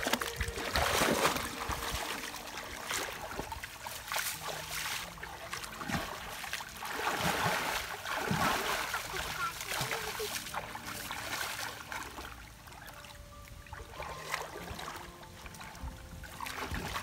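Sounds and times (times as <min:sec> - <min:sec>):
hands slapping water: 0:00.0 - 0:12.3
water splashing and sloshing: 0:00.0 - 0:17.0.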